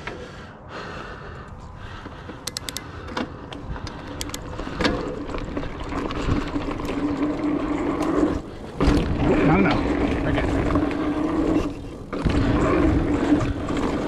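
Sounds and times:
bike clicks and rattles: 0.0 - 0.5, 1.3 - 14.0
tyres buzzing hum: 0.0 - 14.0
wind rumble on microphone: 3.5 - 14.0.

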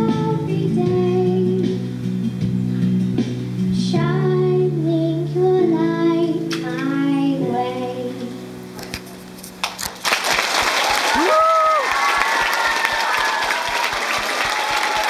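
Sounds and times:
girl singing into a microphone: 0.0 - 2.0, 3.7 - 8.6
backing music: 0.0 - 10.0
audience clapping: 9.6 - 15.0.

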